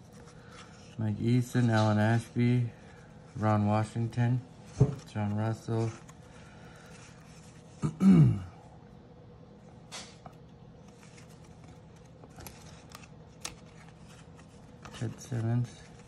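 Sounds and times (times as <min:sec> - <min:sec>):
cards being flipped through: 0:04.6 - 0:07.7, 0:09.8 - 0:16.0.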